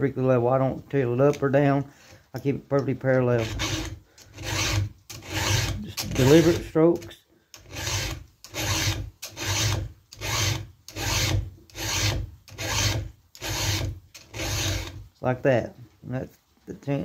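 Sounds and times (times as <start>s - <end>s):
file strokes on chainsaw chain: 3.3s - 15.0s.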